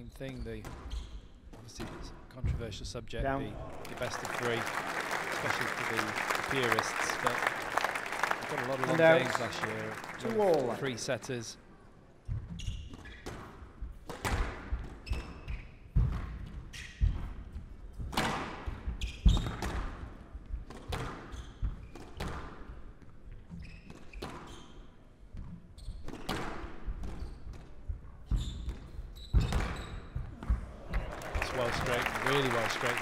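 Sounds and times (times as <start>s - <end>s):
shoes squeaking on court: 0.3s - 1.4s, 23.5s - 26.3s, 28.2s - 30.2s
squash ball hitting rackets and walls: 12.3s - 17.3s, 18.0s - 22.7s, 26.1s - 27.6s.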